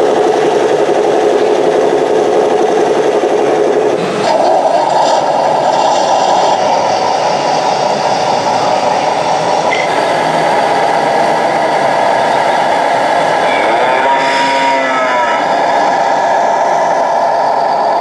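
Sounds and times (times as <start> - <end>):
toy truck motor running: 0.0 - 16.7.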